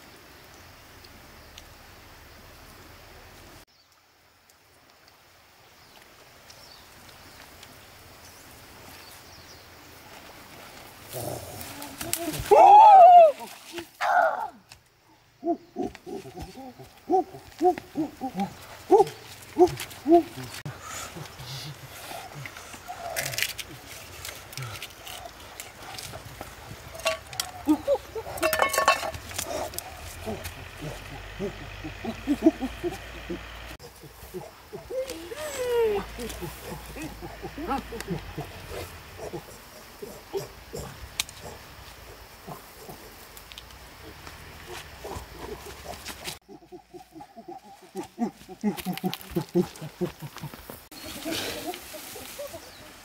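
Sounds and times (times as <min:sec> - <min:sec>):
steady outdoor hiss: 0:00.0 - 0:53.0
rustling: 0:15.8 - 0:32.2.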